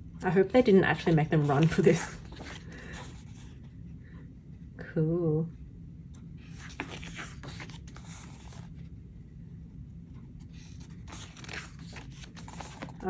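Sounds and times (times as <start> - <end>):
pages rustling and sliding: 1.0 - 3.6, 6.4 - 8.9, 10.4 - 13.0.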